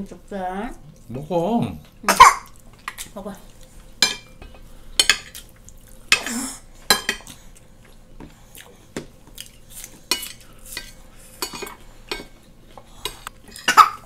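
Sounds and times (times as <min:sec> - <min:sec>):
spoons clinking on plates: 0:04.0 - 0:05.4, 0:06.9 - 0:07.3, 0:10.1 - 0:12.4.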